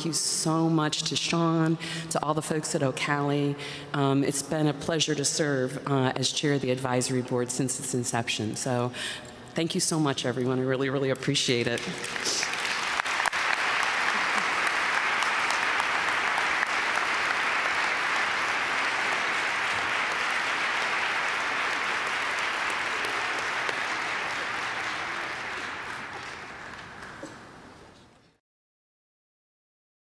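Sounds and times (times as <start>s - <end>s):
audience applauding: 11.8s - 27.9s.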